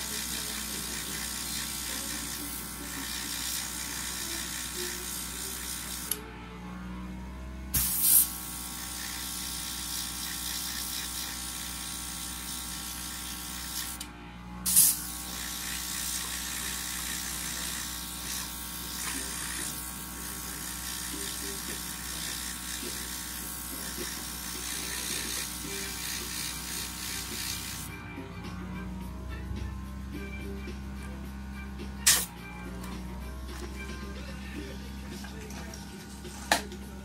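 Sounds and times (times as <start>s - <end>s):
small compressor humming: 0.0s - 37.0s
airbrush hissing: 7.8s - 11.2s, 14.7s - 27.9s.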